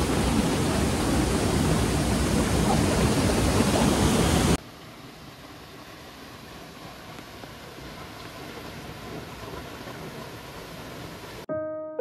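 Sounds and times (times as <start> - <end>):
waterfall roaring: 0.0 - 4.6
steady water hiss: 0.0 - 11.5.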